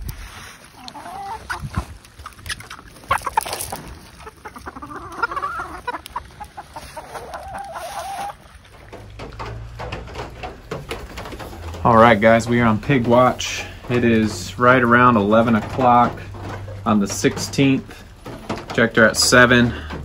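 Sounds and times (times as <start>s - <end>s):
chickens clucking: 0.4s - 20.0s
pig eating from feed pan: 0.8s - 20.0s.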